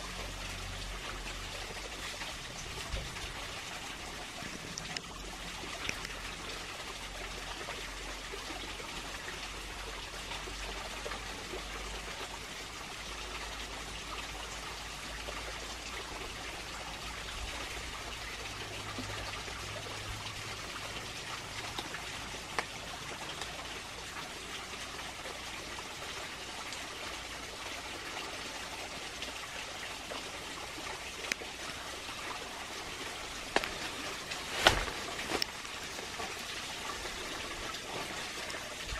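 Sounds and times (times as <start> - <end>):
water trickling: 0.0 - 38.9.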